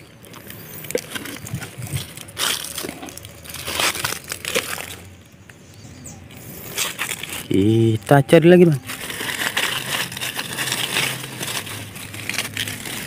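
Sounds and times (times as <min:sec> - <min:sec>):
dry leaves rustling and crackling: 0:00.0 - 0:05.5, 0:06.4 - 0:13.0
leaves crunching: 0:00.3 - 0:05.1, 0:06.4 - 0:13.0.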